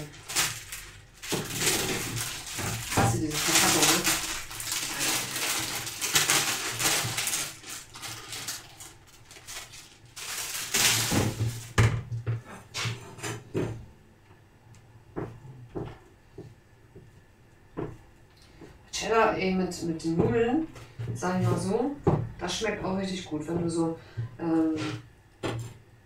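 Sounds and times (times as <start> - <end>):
plastic packaging crinkling: 0.0 - 11.8.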